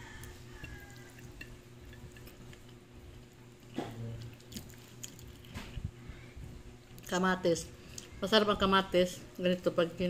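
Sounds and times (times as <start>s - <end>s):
wet chewing: 0.0s - 5.9s
low hum: 0.0s - 10.0s.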